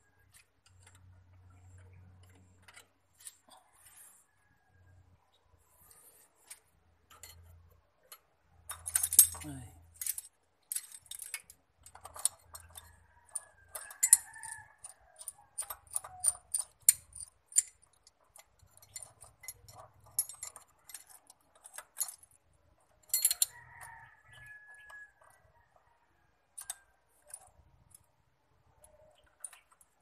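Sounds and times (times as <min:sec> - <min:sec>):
metal tool clinking: 0:07.1 - 0:22.4, 0:23.0 - 0:25.2.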